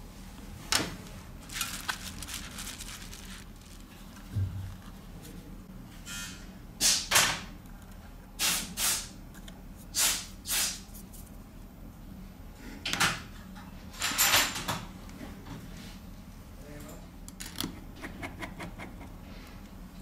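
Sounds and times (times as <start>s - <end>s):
phone parts scraping and rustling: 1.4s - 5.0s.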